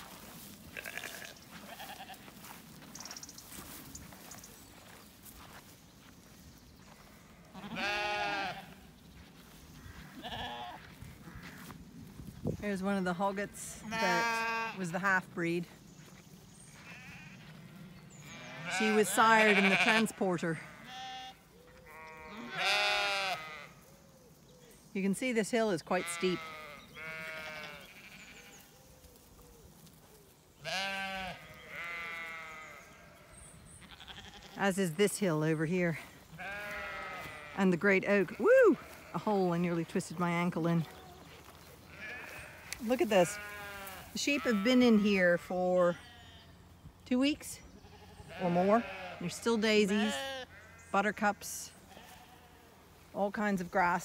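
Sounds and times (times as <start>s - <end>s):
sheep bleating: 0.7s - 2.3s, 6.9s - 8.9s, 9.9s - 11.7s, 13.7s - 15.1s, 16.7s - 23.8s, 25.9s - 28.7s, 30.6s - 46.6s, 47.8s - 51.0s, 51.8s - 52.8s.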